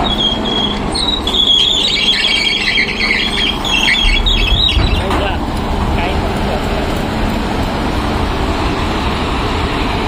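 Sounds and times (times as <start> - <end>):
excavator metallic squealing: 0.0 - 5.5
diesel engine running: 0.0 - 10.0.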